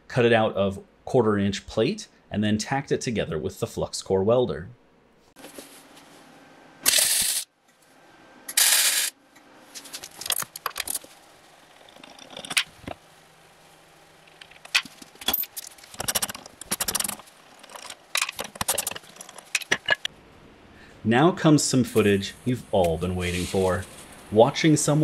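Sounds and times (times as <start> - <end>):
metal tools clinking and scraping: 14.4 - 20.1.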